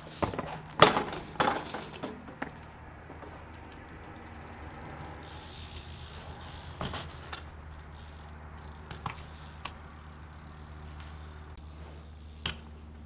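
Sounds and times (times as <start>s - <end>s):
bike knocks on concrete: 0.2s - 3.4s, 6.8s - 7.5s.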